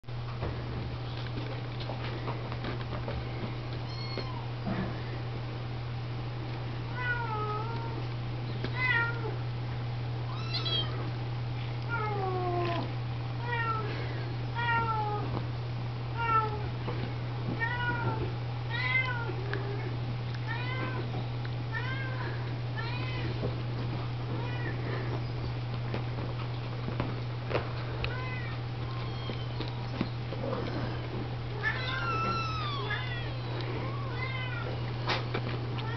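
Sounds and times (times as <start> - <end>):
steady low hum: 0.1 - 35.9
kittens mewing: 10.3 - 11.1, 28.1 - 35.2.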